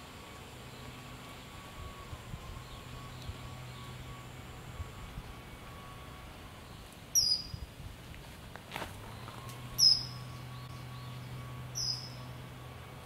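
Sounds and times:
kingfisher shrill calls: 7.1s - 7.6s, 9.8s - 12.3s.

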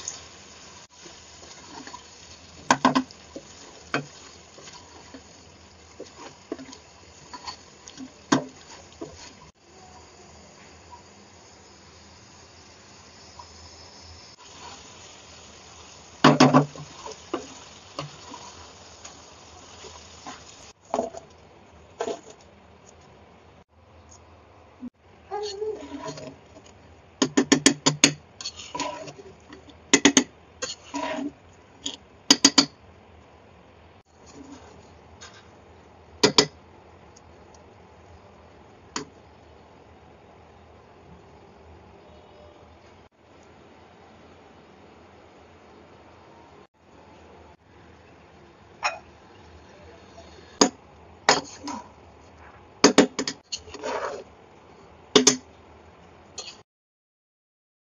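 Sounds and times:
rice being stirred and scraped: 0.0s - 9.6s, 14.3s - 21.2s, 21.8s - 22.5s, 25.4s - 26.7s, 28.4s - 29.6s, 30.6s - 32.0s, 34.1s - 35.6s, 53.4s - 54.4s
spatula scraping through rice: 25.7s - 26.4s, 28.4s - 29.4s, 30.6s - 31.4s, 34.2s - 35.5s, 53.5s - 54.3s.

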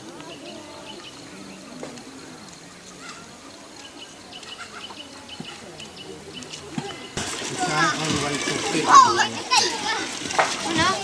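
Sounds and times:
small birds chirping: 0.0s - 7.2s.

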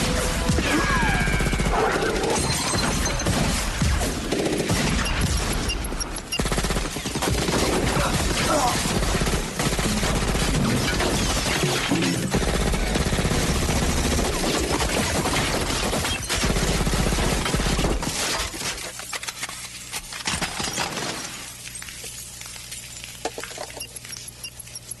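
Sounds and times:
rapid gunfire: 0.0s - 18.4s.

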